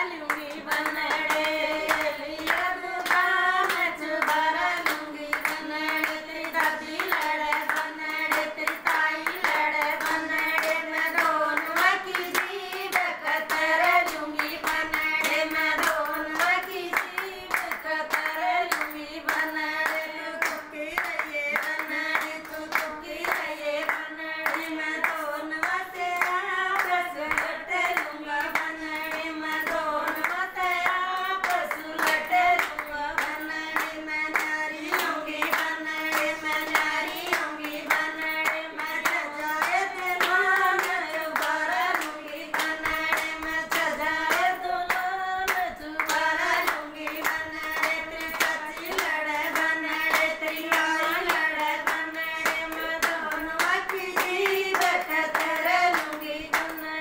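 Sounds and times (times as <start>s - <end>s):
rhythmic hand claps: 0.0s - 57.0s
women singing together: 0.0s - 57.0s.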